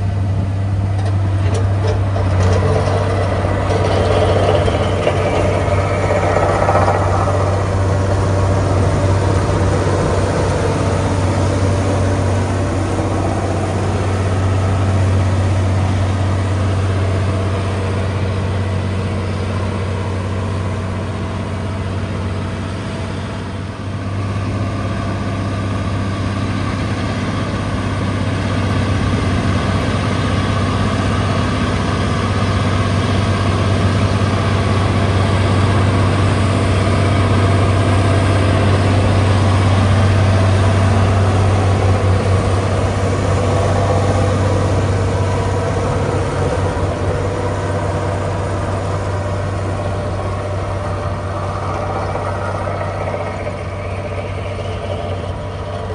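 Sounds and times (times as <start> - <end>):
heavy diesel engine running: 0.0 - 55.9.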